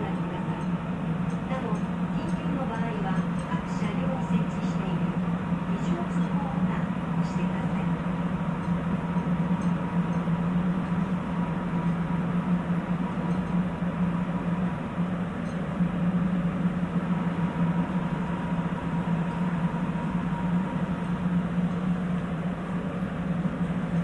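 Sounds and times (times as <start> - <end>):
subway train interior drone: 0.0 - 24.0.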